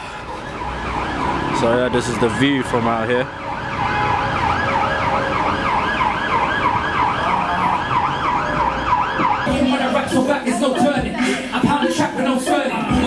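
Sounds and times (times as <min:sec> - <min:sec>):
street traffic: 0:00.0 - 0:13.0
siren on fast yelp: 0:00.2 - 0:09.5.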